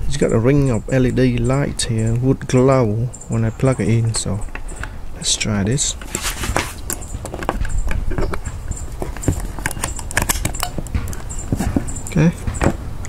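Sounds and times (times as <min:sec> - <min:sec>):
hardware handled on wooden board: 0:05.9 - 0:12.9.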